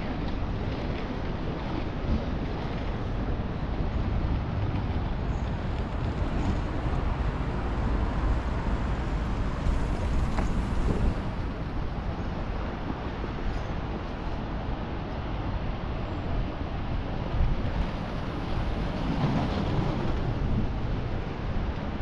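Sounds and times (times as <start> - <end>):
skate wheels rolling on concrete: 0.0 - 14.4
wind on microphone: 0.0 - 14.8
city traffic: 0.0 - 22.0.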